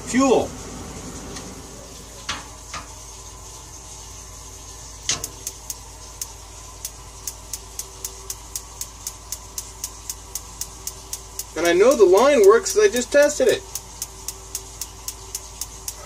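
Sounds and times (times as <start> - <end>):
spark igniter clicking: 5.1 - 16.0.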